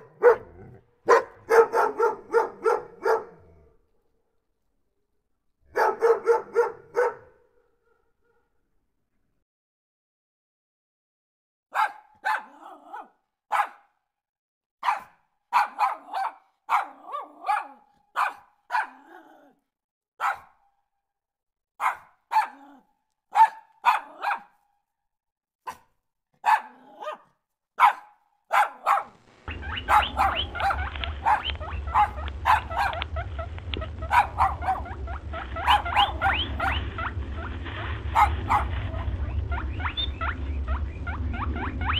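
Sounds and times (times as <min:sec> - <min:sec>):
dog barking: 0:00.0 - 0:03.7, 0:05.7 - 0:08.6, 0:11.7 - 0:14.0, 0:14.8 - 0:19.6, 0:20.2 - 0:20.6, 0:21.8 - 0:24.6, 0:25.6 - 0:37.1, 0:38.1 - 0:39.1
low hum: 0:29.1 - 0:41.9
scratchy clicking: 0:29.1 - 0:41.9.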